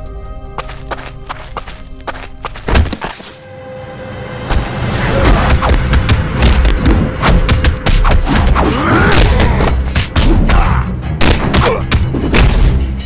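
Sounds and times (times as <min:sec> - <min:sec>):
punch and kick impacts: 0:02.6 - 0:03.2, 0:05.2 - 0:12.8.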